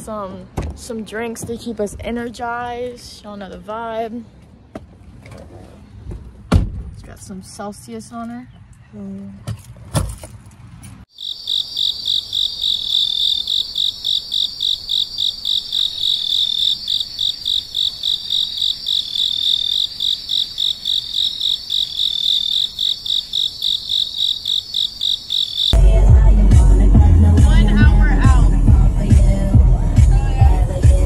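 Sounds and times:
insect chirping trill: 0:11.1 - 0:25.8.

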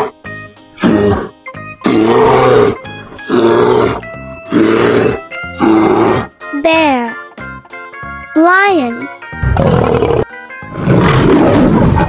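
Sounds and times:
background music: 0:00.0 - 0:12.0
bear growling: 0:00.8 - 0:06.3, 0:09.4 - 0:12.0.

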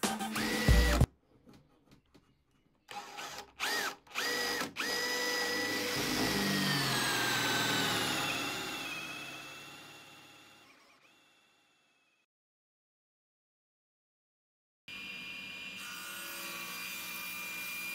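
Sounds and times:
cordless drill whining: 0:00.3 - 0:01.1, 0:02.9 - 0:12.2.

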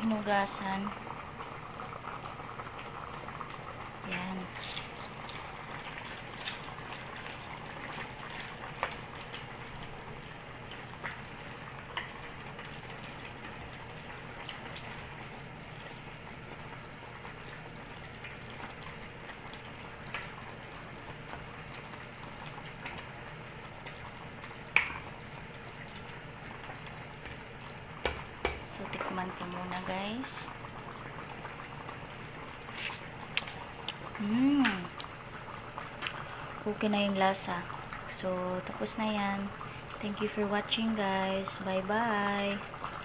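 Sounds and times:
broth bubbling: 0:00.6 - 0:43.0
ladle knocking on metal pot: 0:28.0 - 0:28.7.

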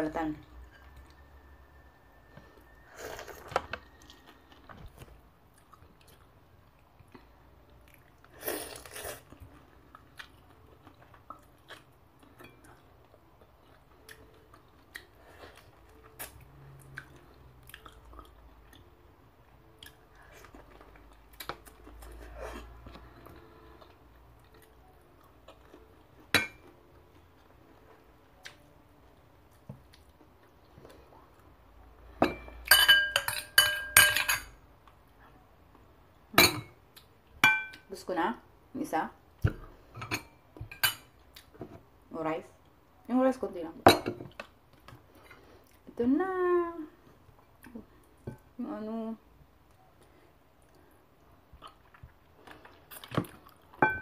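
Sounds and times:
person chewing: 0:05.5 - 0:19.0, 0:50.6 - 0:53.8.

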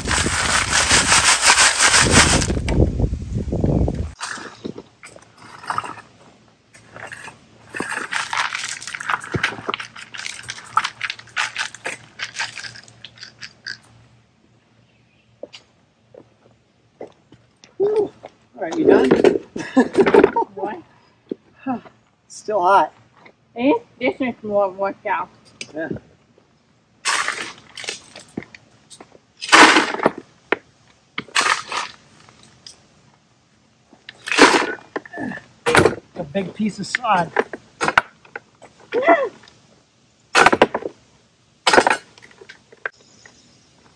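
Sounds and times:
rake scraping through gravel: 0:00.0 - 0:02.7, 0:04.1 - 0:13.8, 0:27.0 - 0:28.6, 0:29.4 - 0:30.2, 0:31.2 - 0:32.7, 0:34.1 - 0:35.0.

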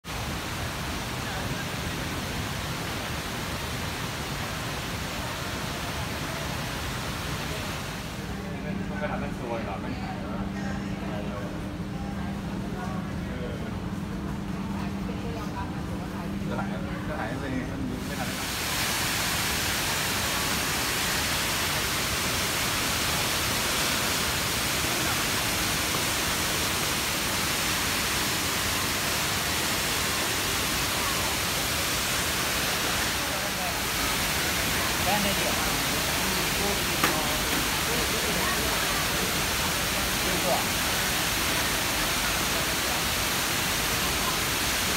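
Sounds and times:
waterfall rushing: 0:00.0 - 0:08.5, 0:18.0 - 0:44.9.

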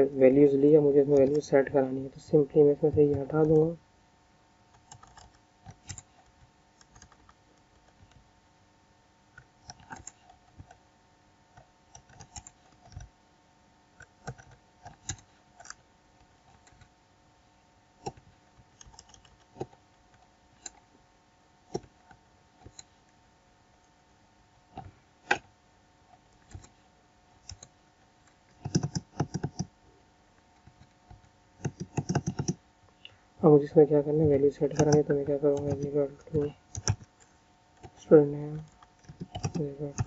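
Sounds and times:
low steady hum: 0:00.0 - 0:40.0
keyboard keystrokes: 0:04.7 - 0:08.2, 0:09.4 - 0:10.8, 0:18.0 - 0:19.8, 0:28.6 - 0:29.7, 0:30.6 - 0:32.6, 0:34.7 - 0:37.1, 0:38.6 - 0:40.0.

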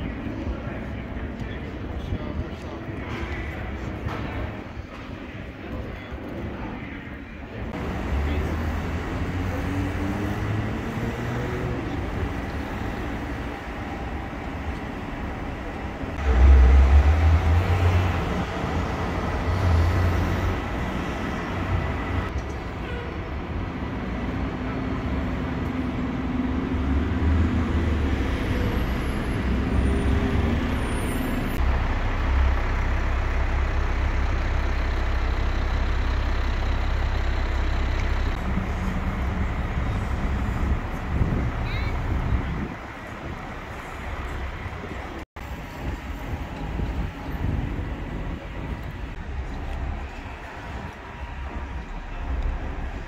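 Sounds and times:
street traffic: 0:00.0 - 0:53.0
heavy vehicle engine running: 0:07.5 - 0:53.0
wind rumbling on microphone: 0:38.4 - 0:53.0.

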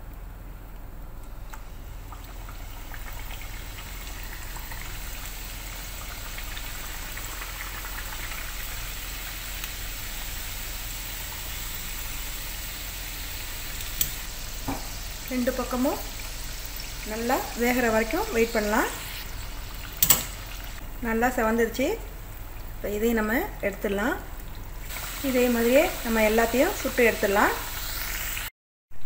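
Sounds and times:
pastries sizzling in hot oil: 0:00.9 - 0:28.5
sharp click: 0:20.0 - 0:20.4.

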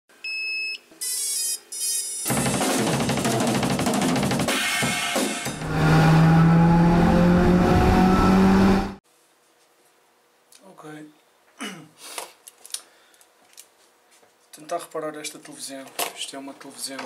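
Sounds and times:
drums and cymbals: 0:02.3 - 0:05.7.

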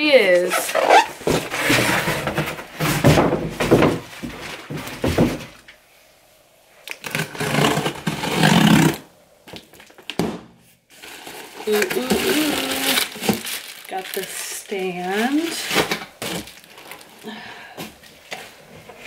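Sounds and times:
cardboard box rubbing and scraping: 0:00.6 - 0:03.2, 0:07.1 - 0:09.0.

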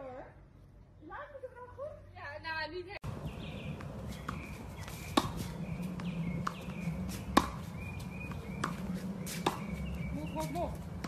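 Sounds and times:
racket hitting tennis ball: 0:03.8 - 0:11.0.

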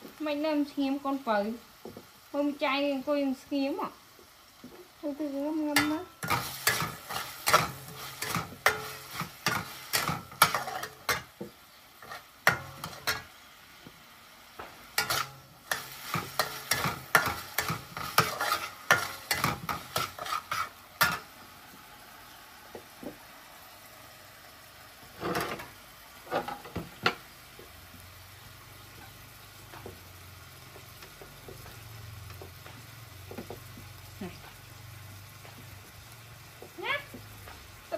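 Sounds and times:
meat sizzling: 0:00.0 - 0:37.9
metal spatula scraping a wok: 0:05.7 - 0:11.4, 0:12.0 - 0:13.4, 0:14.9 - 0:21.3, 0:25.1 - 0:27.2.

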